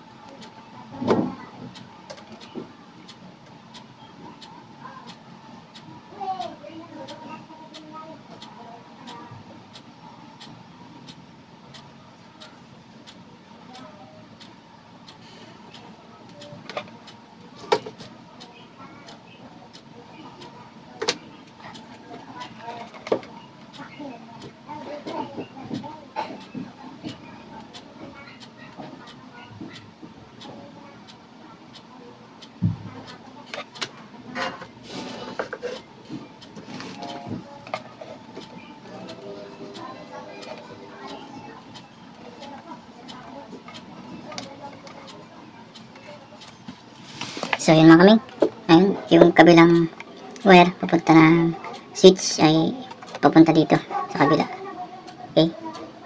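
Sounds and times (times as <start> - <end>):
regular ticking: 0.0 - 56.0.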